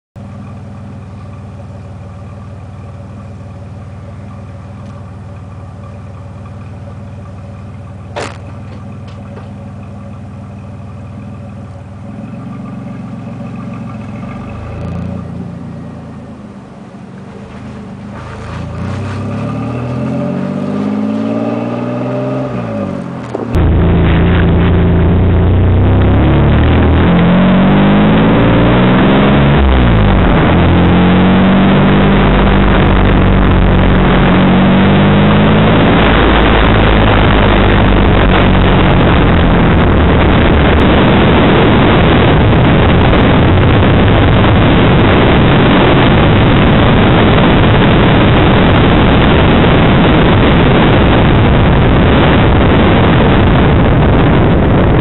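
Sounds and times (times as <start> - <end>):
car engine revving: 0.4 - 55.0.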